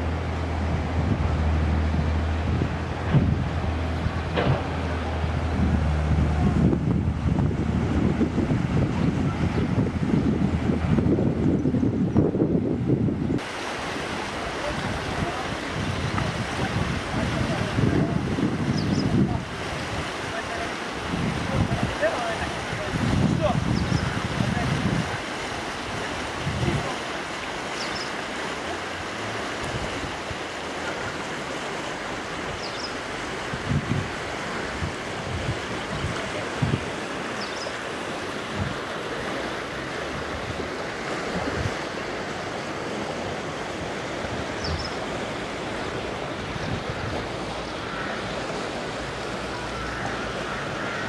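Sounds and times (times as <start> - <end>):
river rushing: 0.0 - 51.0
wind thumps on microphone: 0.8 - 13.5.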